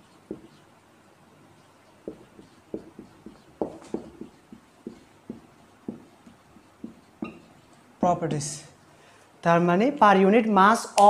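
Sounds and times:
marker pen writing on whiteboard: 0:00.0 - 0:00.8, 0:01.4 - 0:08.5.

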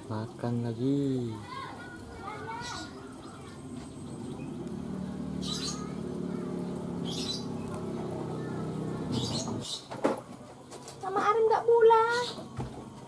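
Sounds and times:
small birds chirping: 0:00.1 - 0:12.6
steady low hum: 0:02.8 - 0:09.7.

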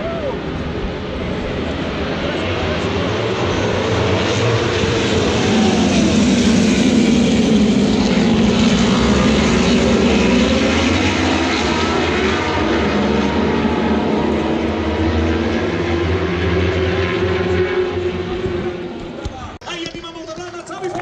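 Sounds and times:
racing motorcycles passing: 0:00.0 - 0:19.6.

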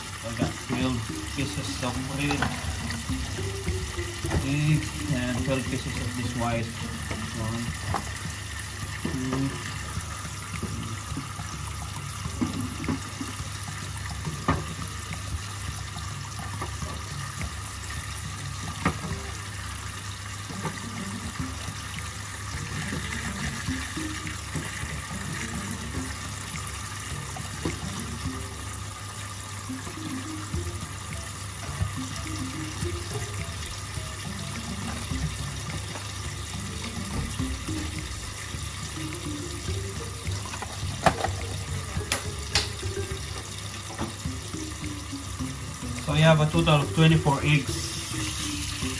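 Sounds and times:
tap running into metal sink: 0:00.4 - 0:19.5, 0:30.1 - 0:47.0.

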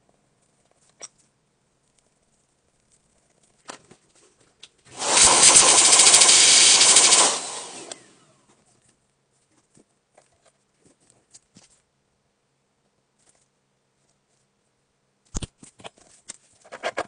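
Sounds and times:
air tool rush with motor flutter: 0:04.9 - 0:08.4.

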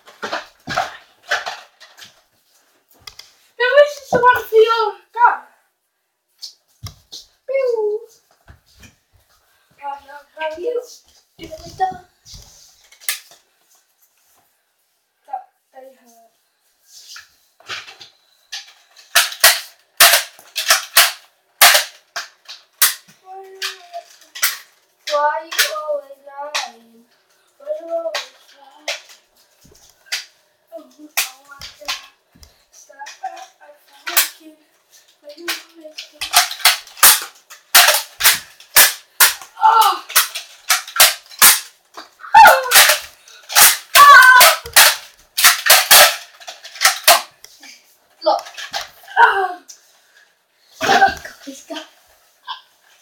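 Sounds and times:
boy shouting: 0:39.5 - 0:40.1, 0:42.2 - 0:43.0, 0:43.9 - 0:44.8, 0:49.1 - 0:49.7, 0:50.8 - 0:51.3.

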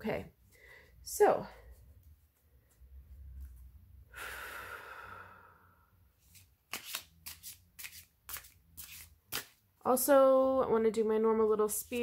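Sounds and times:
cards sliding while shuffled: 0:06.2 - 0:09.6.

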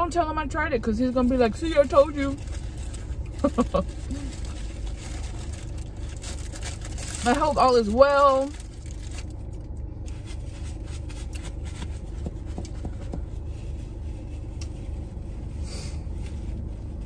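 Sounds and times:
car cabin hum: 0:00.0 - 0:17.0
paper wrapper crinkling: 0:01.7 - 0:12.1.

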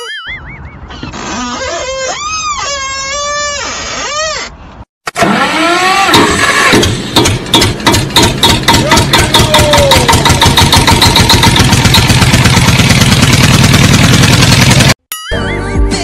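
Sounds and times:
motorcycle engine revving: 0:08.3 - 0:15.0.

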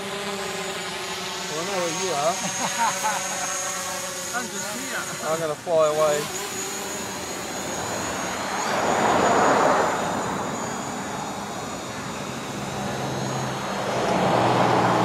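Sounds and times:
drone propellers whining: 0:00.0 - 0:15.0
broad rushing noise: 0:04.4 - 0:15.0.

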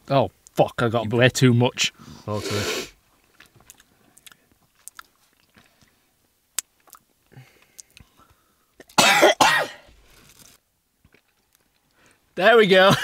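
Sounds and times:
faint clicks and rustles: 0:03.0 - 0:09.0, 0:09.9 - 0:12.3
man coughing hard: 0:09.0 - 0:09.9.

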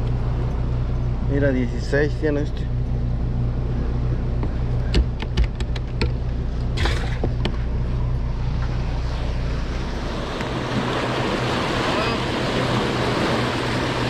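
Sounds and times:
boat motor humming: 0:00.0 - 0:14.0
turbulent water rushing: 0:10.0 - 0:14.0.

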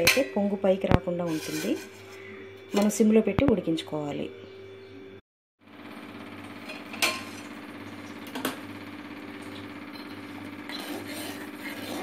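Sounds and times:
pot of water boiling: 0:05.8 - 0:12.0.

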